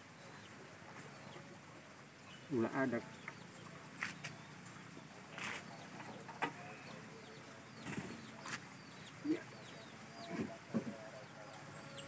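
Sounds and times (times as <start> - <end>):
chickens clucking: 2.6 - 12.0.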